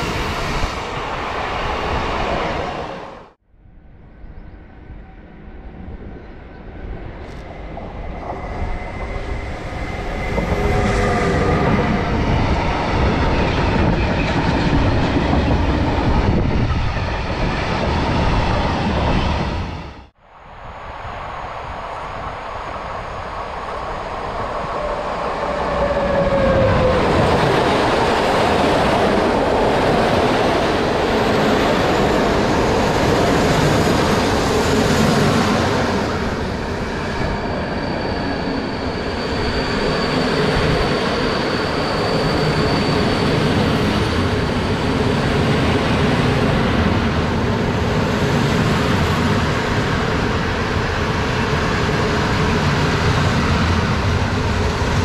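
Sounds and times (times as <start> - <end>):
train passing: 0.0 - 3.4, 4.2 - 55.0
high squeal: 36.1 - 45.2.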